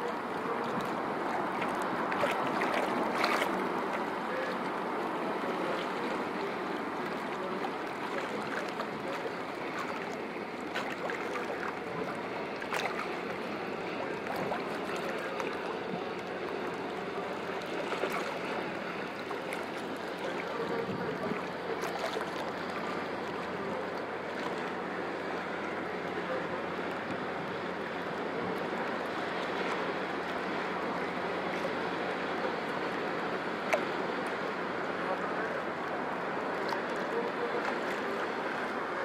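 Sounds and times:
small waves lapping at shore: 0:00.0 - 0:39.0
sharp water splashes: 0:00.8 - 0:04.9, 0:05.8 - 0:24.8.

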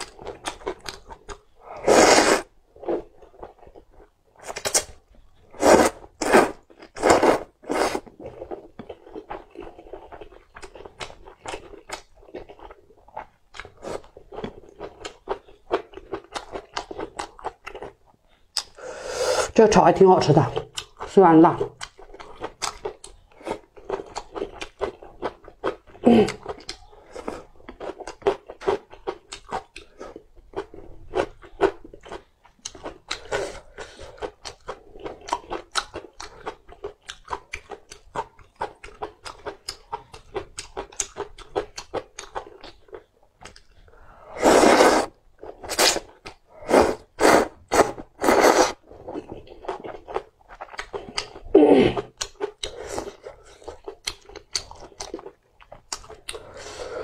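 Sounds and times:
chewing noodles: 0:00.0 - 0:18.8, 0:20.6 - 0:57.0
loud slurps: 0:01.8 - 0:02.4, 0:44.4 - 0:46.0, 0:46.6 - 0:48.8.

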